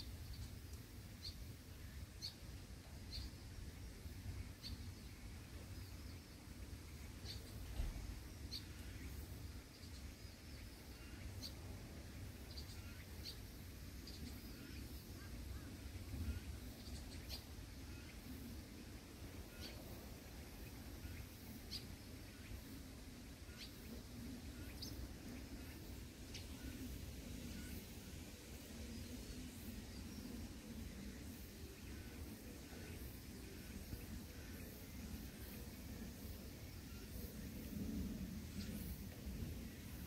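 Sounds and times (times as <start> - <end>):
faint high bird chirps: 19.4 - 20.0, 23.4 - 28.1.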